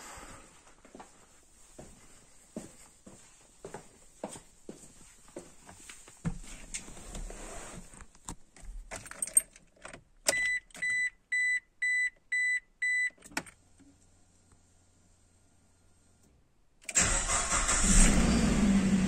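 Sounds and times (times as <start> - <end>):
keys jangling: 8.9 - 9.9
car warning chime beeping: 10.3 - 13.2.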